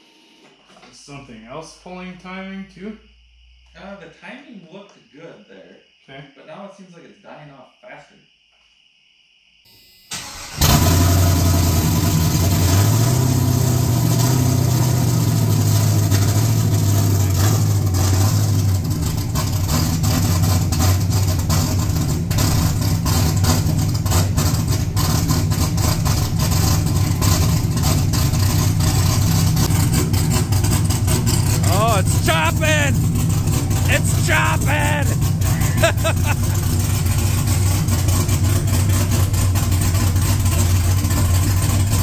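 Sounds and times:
loud engine idling choppily: 28.4s - 37.8s.

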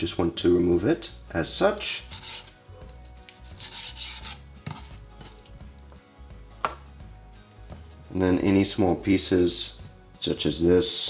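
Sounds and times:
knife slicing raw chicken: 2.0s - 2.6s, 3.3s - 5.4s.

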